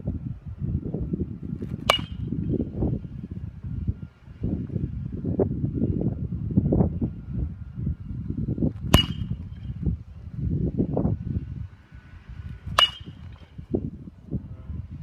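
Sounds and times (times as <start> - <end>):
baseball bat hitting ball: 1.6 - 2.5, 8.8 - 9.7, 12.6 - 13.6.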